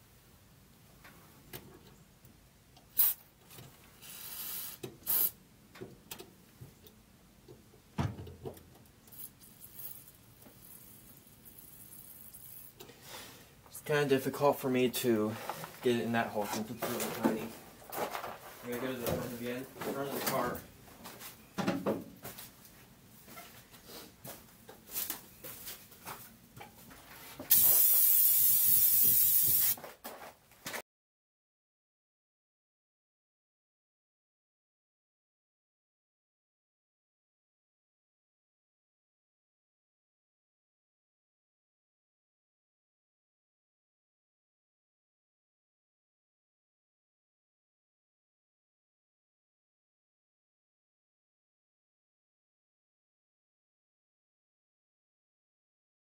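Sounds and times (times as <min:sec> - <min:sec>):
spray hissing: 0:03.0 - 0:03.2, 0:04.0 - 0:05.4, 0:27.5 - 0:29.8
dull thump: 0:08.0 - 0:08.6.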